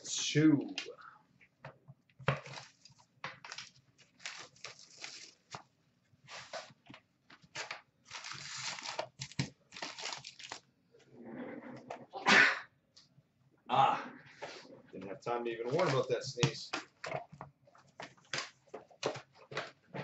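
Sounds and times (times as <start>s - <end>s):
wrapping tearing and crinkling: 2.3s - 5.7s, 7.4s - 10.7s.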